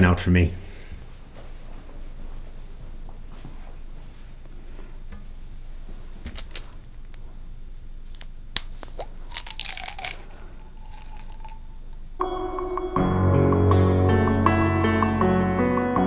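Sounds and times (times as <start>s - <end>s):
pills rattling: 8.1s - 12.1s
pill bottle clicks: 9.3s - 11.7s.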